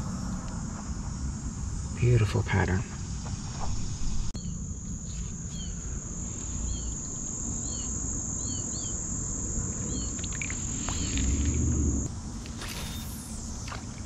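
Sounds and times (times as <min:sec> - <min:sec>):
high insect drone: 0:00.0 - 0:14.0
small bird chirping: 0:05.5 - 0:05.8, 0:06.6 - 0:09.0, 0:09.9 - 0:12.1
low rumble: 0:10.8 - 0:12.4.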